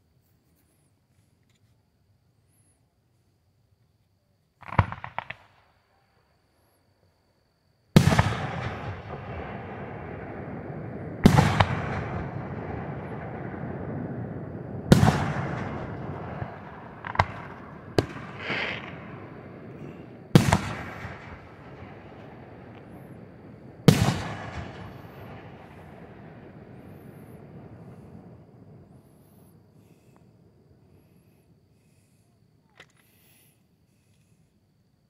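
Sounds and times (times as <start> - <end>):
firework crackle: 8.0 - 29.4
firework booms with rumble: 8.0 - 29.8.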